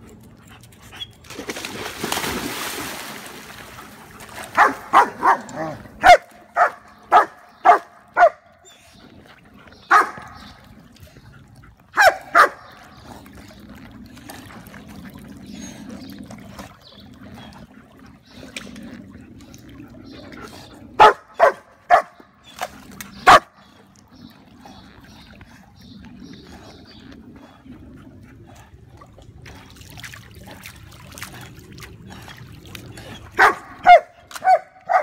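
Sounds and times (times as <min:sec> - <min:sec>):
water sloshing: 0:00.0 - 0:35.0
dog barking: 0:04.6 - 0:08.4, 0:09.9 - 0:10.2, 0:12.0 - 0:12.6, 0:21.0 - 0:22.2, 0:33.4 - 0:35.0.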